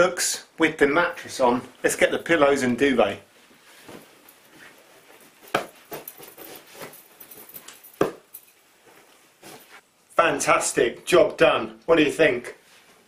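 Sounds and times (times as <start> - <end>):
bedding rustling: 1.2 - 9.9.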